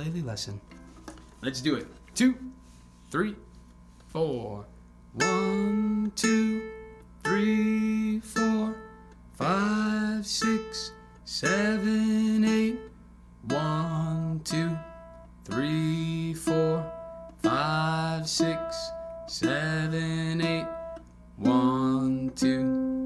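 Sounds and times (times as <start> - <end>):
man singing: 5.2 - 23.0.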